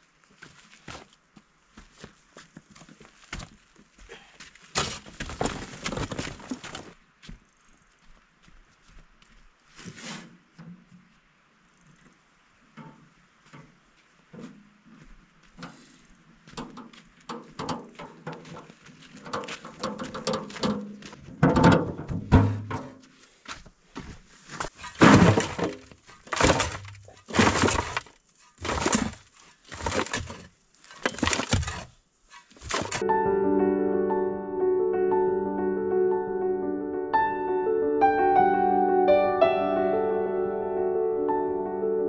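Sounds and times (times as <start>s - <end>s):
sharp knocks or crashes: 19.3s - 23.0s, 24.8s - 31.9s, 32.6s - 33.0s.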